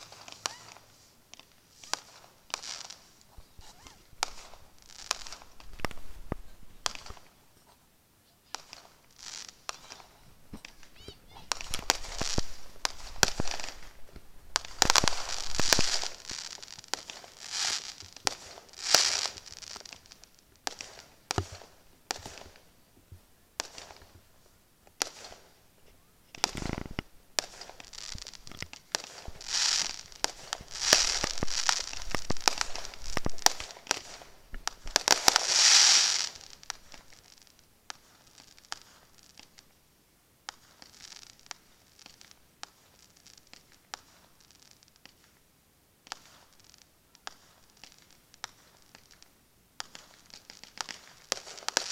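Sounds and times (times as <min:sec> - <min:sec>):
fireworks bangs and crackling: 0:00.0 - 0:39.8, 0:40.4 - 0:51.9
deep firework boom: 0:11.5 - 0:16.3.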